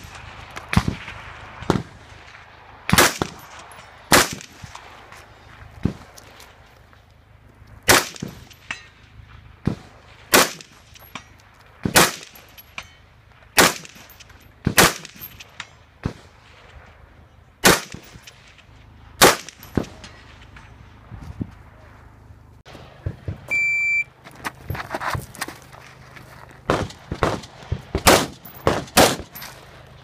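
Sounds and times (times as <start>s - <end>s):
rifle shots: 0.0s - 5.0s, 7.9s - 8.5s, 9.6s - 10.8s, 11.8s - 12.4s, 13.6s - 16.7s, 17.6s - 18.5s, 19.2s - 20.6s, 26.7s - 29.4s
steel targets clanging: 12.0s - 15.8s.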